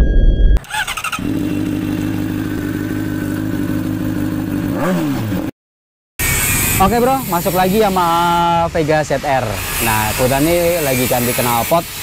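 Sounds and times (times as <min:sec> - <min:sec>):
motorcycle engine idling: 0:00.8 - 0:04.7.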